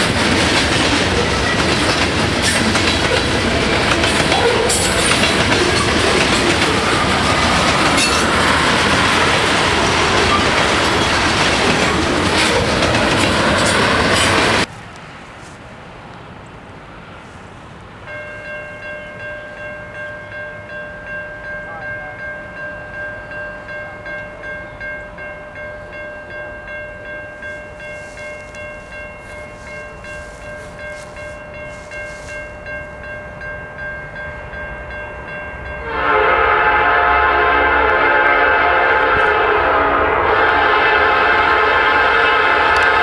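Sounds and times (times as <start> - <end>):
crossing bell ringing: 0.0 - 14.7, 18.0 - 43.0
locomotive air horn: 35.8 - 43.0.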